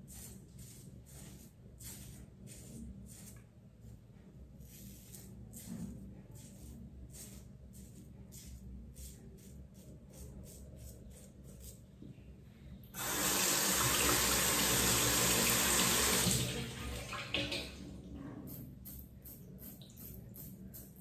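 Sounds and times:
faint scratchy strokes: 0:00.0 - 0:12.8
sink tap running: 0:13.0 - 0:16.6.

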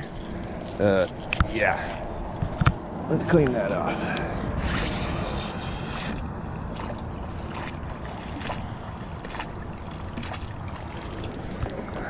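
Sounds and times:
metal swished in water splashing: 0:04.6 - 0:12.0.

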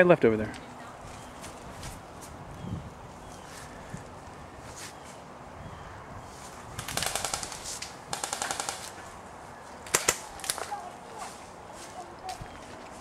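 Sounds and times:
airsoft full-auto bursts: 0:06.8 - 0:08.9.

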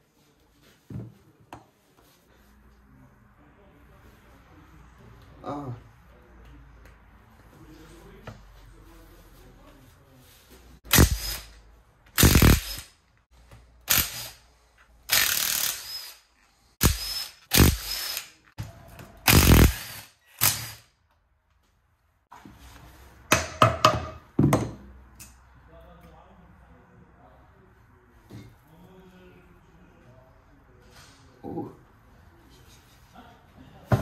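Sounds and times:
power tool bursts: 0:10.9 - 0:11.5, 0:12.2 - 0:12.9, 0:13.9 - 0:14.4, 0:15.1 - 0:16.2, 0:16.8 - 0:18.3, 0:19.3 - 0:20.9.

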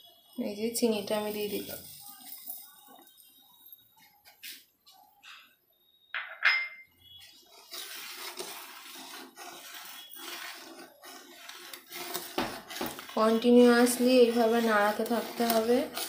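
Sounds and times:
metal clink: 0:06.2 - 0:06.9
ladle scraping a steel pan: 0:07.1 - 0:16.0.

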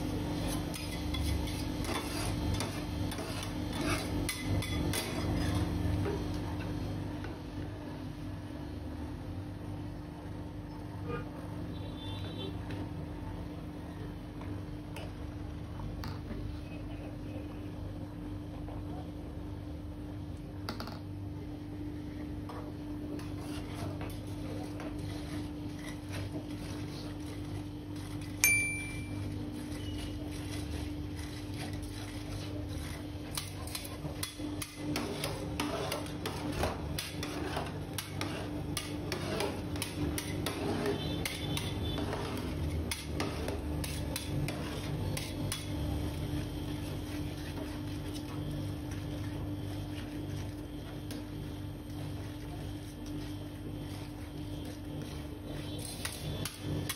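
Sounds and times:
metal spatulas scraping on pan: 0:00.3 - 0:05.9, 0:23.1 - 0:28.4, 0:29.0 - 0:48.3, 0:53.8 - 0:56.9.

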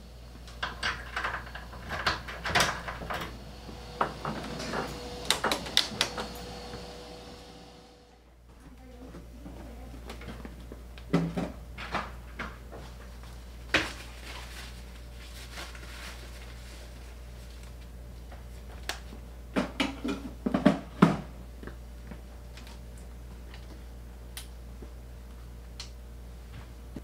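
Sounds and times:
steady low hum: 0:00.0 - 0:27.0
objects clunking and clattering: 0:00.4 - 0:06.8, 0:09.2 - 0:13.0, 0:19.5 - 0:21.3.

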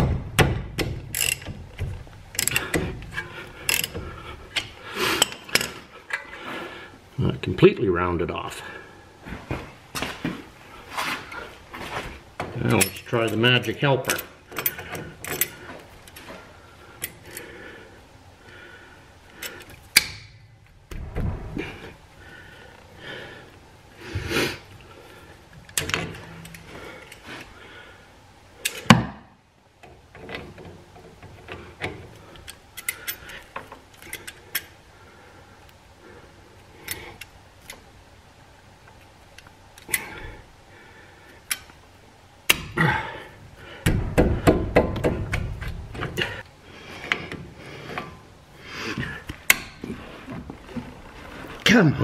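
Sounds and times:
pliers clanking and scraping on bolt: 0:00.8 - 0:06.3, 0:12.6 - 0:16.3, 0:25.7 - 0:27.2, 0:30.2 - 0:34.8.

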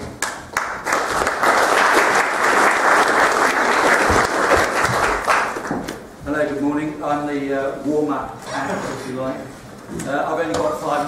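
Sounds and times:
audience applauding: 0:00.2 - 0:06.0.

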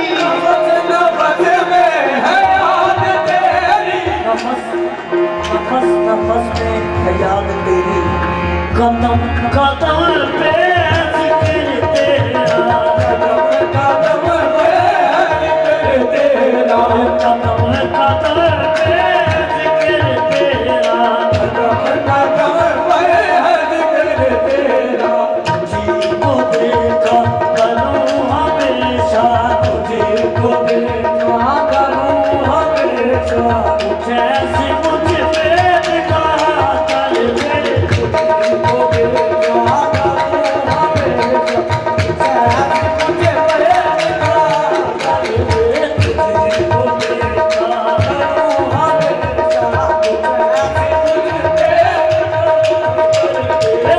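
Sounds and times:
hand drum rhythm: 0:00.0 - 0:53.9
men singing: 0:00.0 - 0:53.9.

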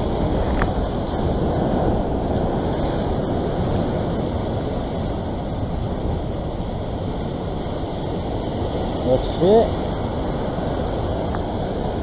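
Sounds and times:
ocean surf over rocks: 0:00.0 - 0:12.0
wind buffeting microphone: 0:00.0 - 0:12.0.

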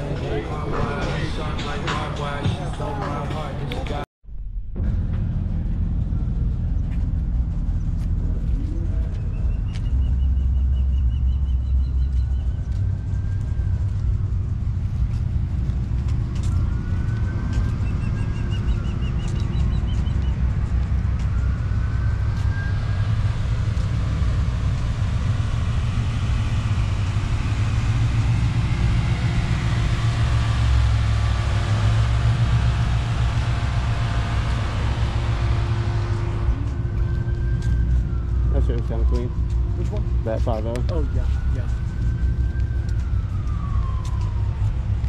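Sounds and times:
low rumble: 0:00.0 - 0:45.0
car passing: 0:12.7 - 0:45.0.

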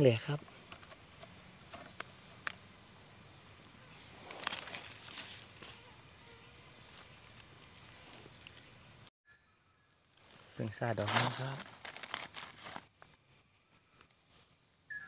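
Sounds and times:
insects singing: 0:00.0 - 0:09.1.

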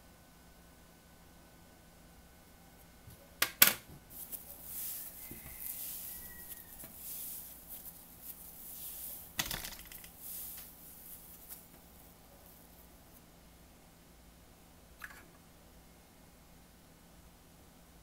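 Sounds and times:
slime crackling: 0:04.1 - 0:12.8.

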